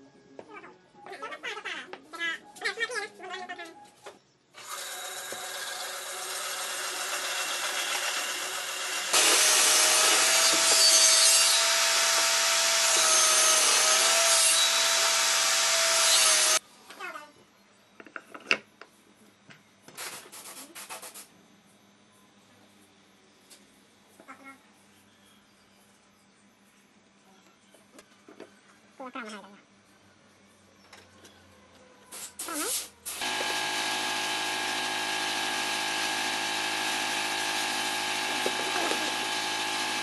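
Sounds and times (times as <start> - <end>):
power tool whining: 4.6 - 16.6, 33.2 - 40.0.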